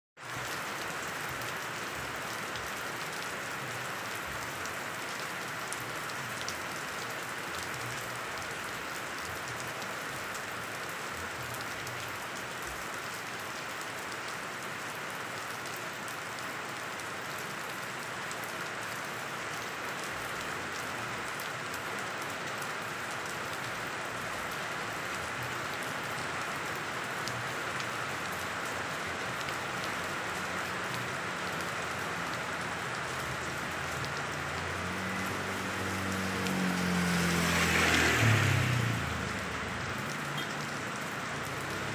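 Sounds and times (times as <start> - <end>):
rain falling on leaves: 0.2 - 41.9.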